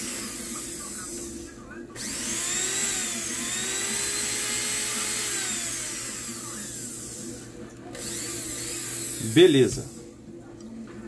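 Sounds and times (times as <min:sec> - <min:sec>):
electric motor whining: 0:02.0 - 0:10.1.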